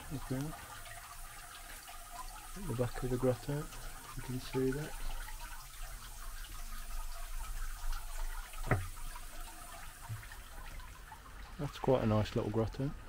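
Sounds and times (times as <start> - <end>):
water trickling and splashing: 0.0 - 13.0
short knock: 8.6 - 8.9.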